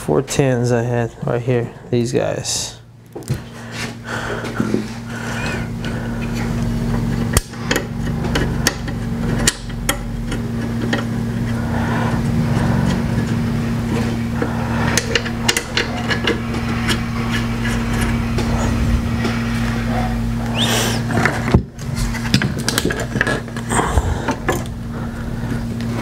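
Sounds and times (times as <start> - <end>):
low mechanical hum: 0.0 - 26.0
clicks and knocks of parts handled: 21.1 - 23.7.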